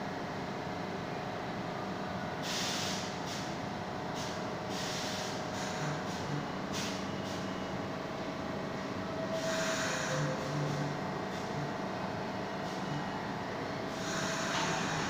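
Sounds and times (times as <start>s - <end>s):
train air brakes hissing: 2.4s - 7.6s, 9.3s - 11.7s, 12.6s - 13.0s, 13.8s - 15.0s
train rumble: 8.1s - 15.0s.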